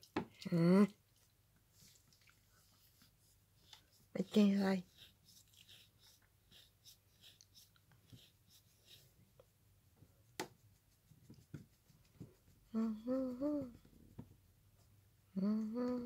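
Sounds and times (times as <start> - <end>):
person humming or speaking: 0.4 - 1.0, 12.7 - 13.8, 15.3 - 16.0.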